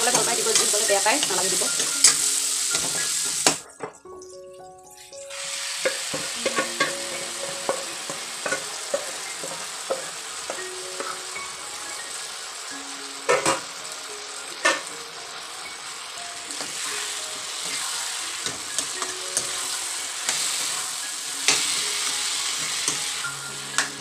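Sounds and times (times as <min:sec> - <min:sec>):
greens sizzling in a pan: 0:00.0 - 0:03.7, 0:04.9 - 0:24.0
metal ladle knocking on pan: 0:13.3 - 0:13.7.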